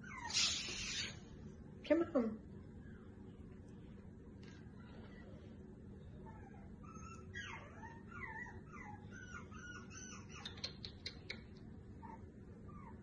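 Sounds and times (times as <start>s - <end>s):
dog whimpering: 0.0s - 1.2s, 6.2s - 11.4s, 12.0s - 13.0s.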